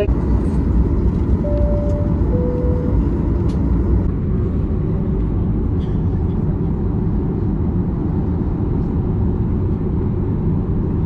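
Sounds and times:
aircraft cabin rumble: 0:00.0 - 0:11.0
two-tone cabin chime: 0:01.4 - 0:03.1.

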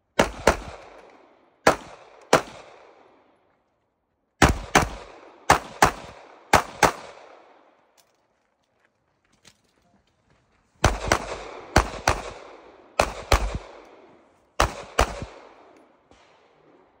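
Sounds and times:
pistol shots with echo: 0:00.1 - 0:03.4, 0:04.4 - 0:07.8, 0:10.8 - 0:17.0.

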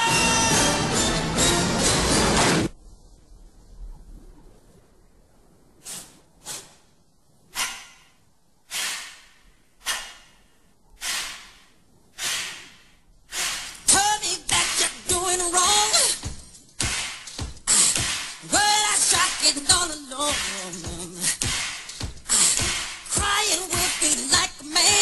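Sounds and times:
breathy whooshes: 0:08.7 - 0:13.8
music with a voice: 0:17.7 - 0:21.5.

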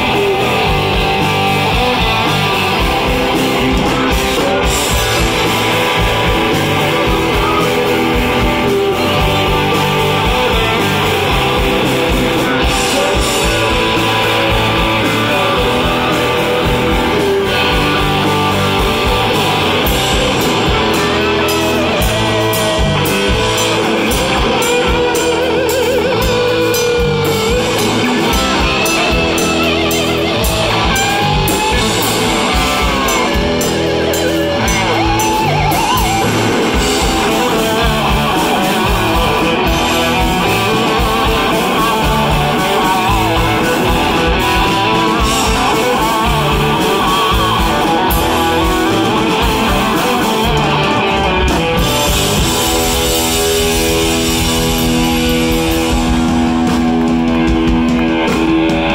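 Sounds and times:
distorted electric guitars: 0:00.0 - 0:58.9
drums: 0:00.0 - 0:58.9
lead guitar with bent notes: 0:00.0 - 0:58.9.

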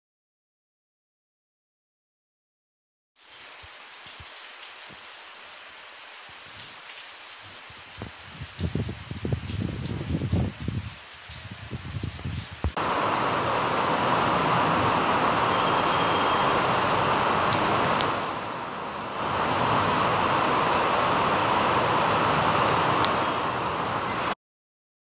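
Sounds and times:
heavy rain pouring: 0:03.2 - 0:24.4
raindrops ticking on surfaces: 0:03.2 - 0:24.4.

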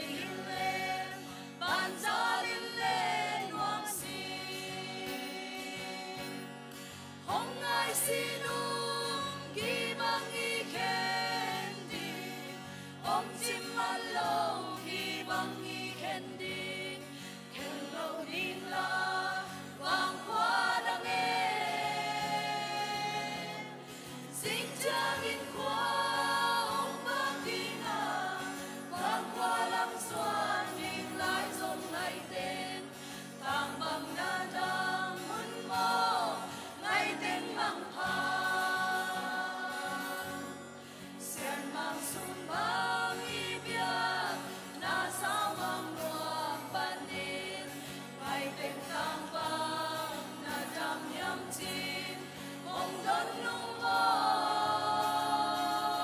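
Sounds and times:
mixed choir singing a hymn: 0:00.0 - 0:06.5, 0:07.2 - 0:56.0.

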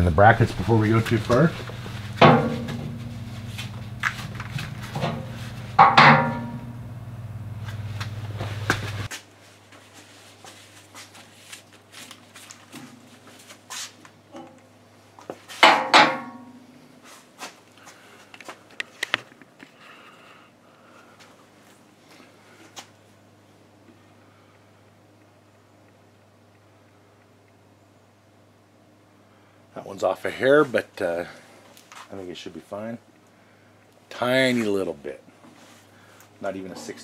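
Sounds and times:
steady low hum: 0:00.0 - 0:15.3
metal clanking on steel bucket: 0:02.2 - 0:03.2, 0:04.9 - 0:06.7.

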